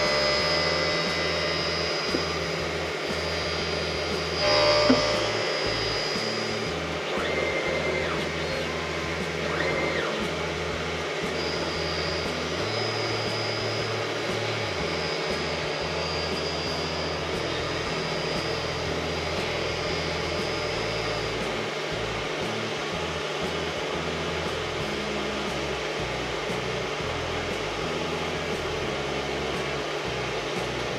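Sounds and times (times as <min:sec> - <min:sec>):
short rising and falling tones: 0:00.0 - 0:21.7
thin high whine: 0:00.0 - 0:30.9.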